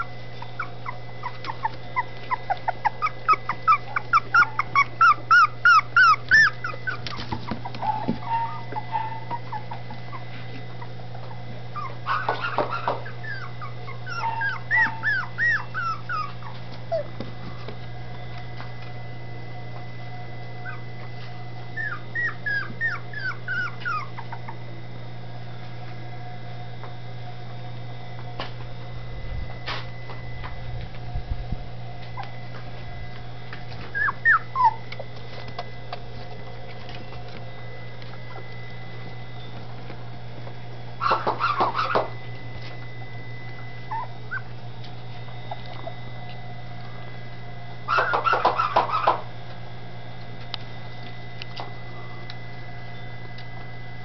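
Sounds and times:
puppies whimpering: 0.0s - 17.8s, 20.4s - 25.0s, 32.0s - 32.7s, 33.6s - 39.9s, 41.0s - 46.4s, 47.8s - 49.3s
steady low hum: 0.0s - 54.0s.

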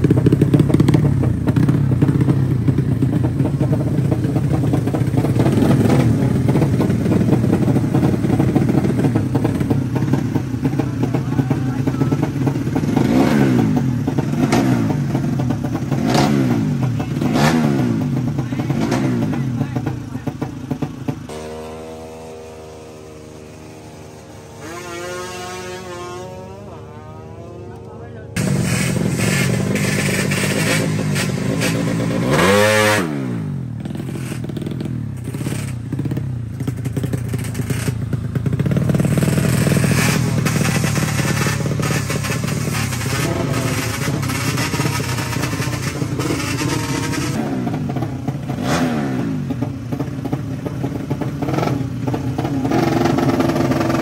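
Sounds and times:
motorcycle engine revving: 0.0s - 54.0s
sharp exhaust cracks: 27.7s - 33.1s, 34.0s - 54.0s.

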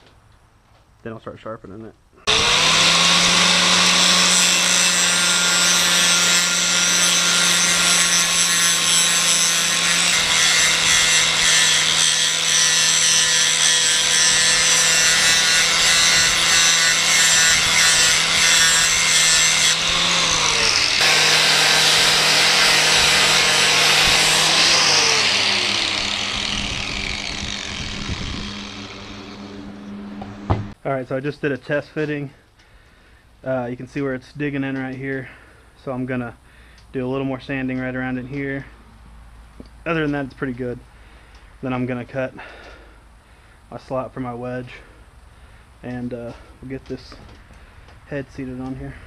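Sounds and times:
angle grinder grinding steel: 2.2s - 30.8s.

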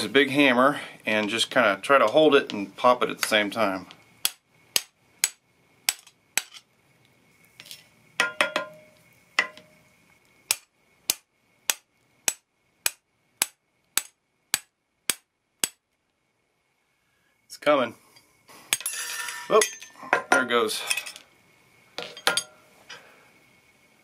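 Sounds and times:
hammer tapping metal bar: 8.2s - 9.7s.

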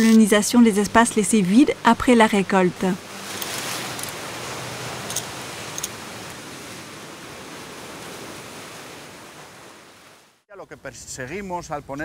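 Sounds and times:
sea surf rushing over rocks: 1.3s - 10.3s.

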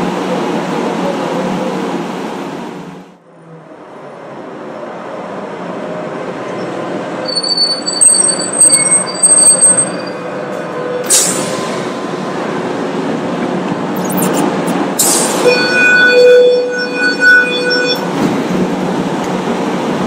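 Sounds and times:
passing tram rush: 0.0s - 20.0s
tram rumble: 0.0s - 20.0s
steel wheels squealing: 6.5s - 11.8s, 14.0s - 18.8s.

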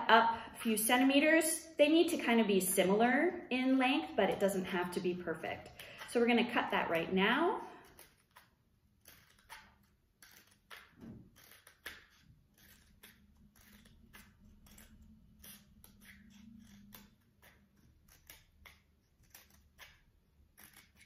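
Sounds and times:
scissors snipping cardboard: 7.8s - 21.0s.

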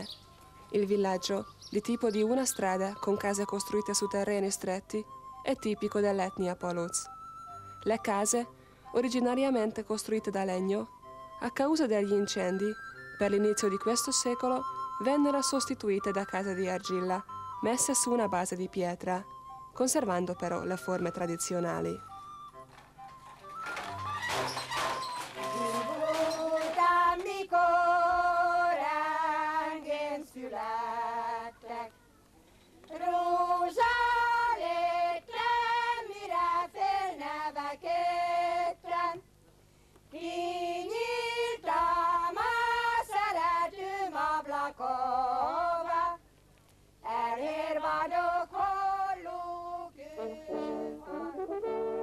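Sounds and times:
person singing with vibrato: 25.0s - 32.1s, 47.0s - 52.0s.

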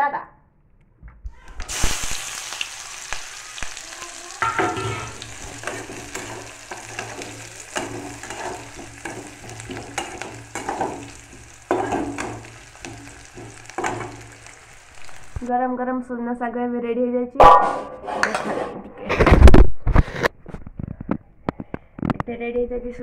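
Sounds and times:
onion sizzling in hot oil: 1.5s - 15.5s
metal spatula scraping a pan: 4.4s - 15.4s.

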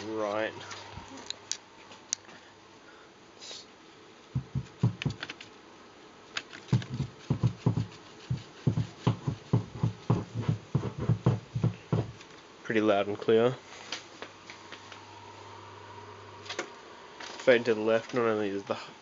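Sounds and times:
low thumps from speaker: 4.4s - 5.2s, 6.7s - 12.2s.

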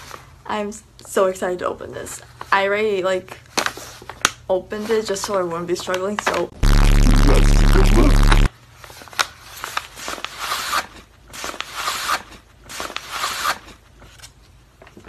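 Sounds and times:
loud distorted blast with hum: 6.6s - 8.5s.

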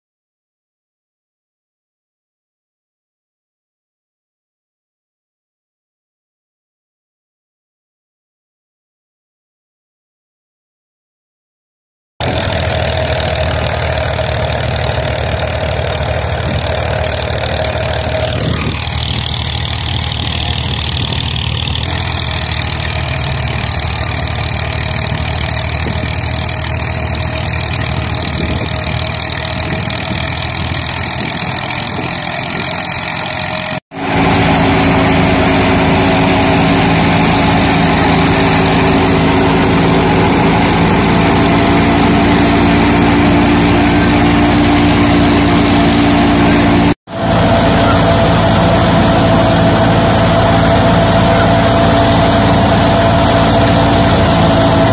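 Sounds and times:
tractor and thresher droning: 12.2s - 54.9s.

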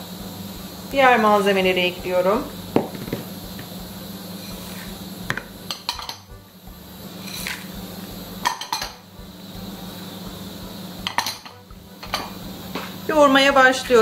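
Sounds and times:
steady low hum: 0.0s - 14.0s
bowls clinking on bowl rim: 5.7s - 6.3s, 8.4s - 9.0s, 11.0s - 12.4s.

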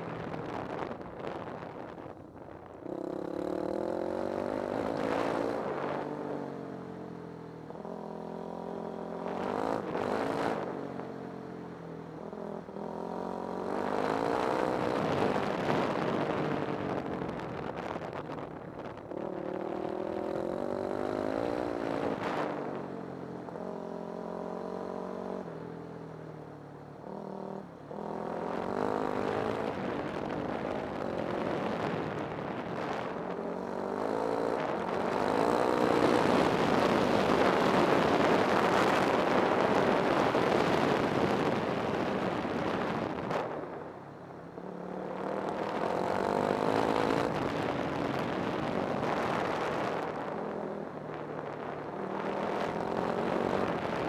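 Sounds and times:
vehicle engine revving: 7.8s - 10.8s, 18.9s - 22.9s, 27.0s - 43.6s, 44.6s - 54.0s.

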